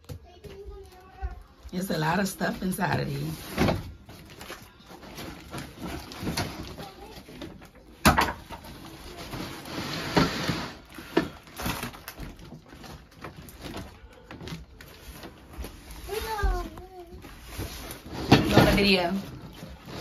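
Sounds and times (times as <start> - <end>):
cardboard rustling: 2.5 - 20.0
cardboard box scraping: 8.9 - 10.9.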